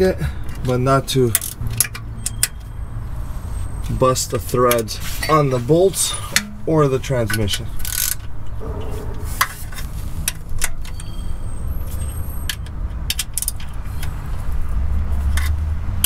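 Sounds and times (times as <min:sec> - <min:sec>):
steady low rumble: 0:08.4 - 0:11.5.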